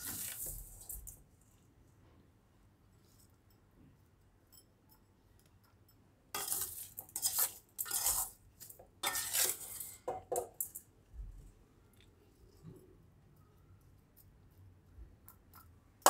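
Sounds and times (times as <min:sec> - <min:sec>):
metal spoon scraping dishes: 0:06.4 - 0:10.8.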